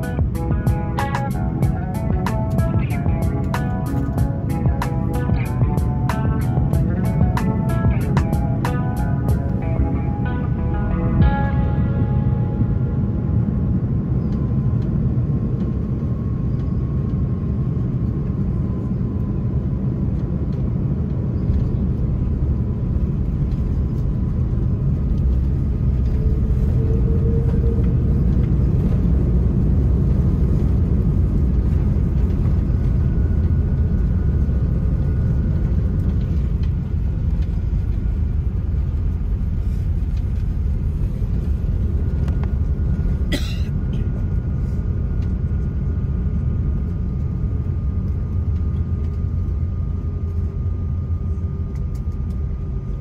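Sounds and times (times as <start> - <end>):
airplane cabin rumble taxiing: 0.0 - 53.0.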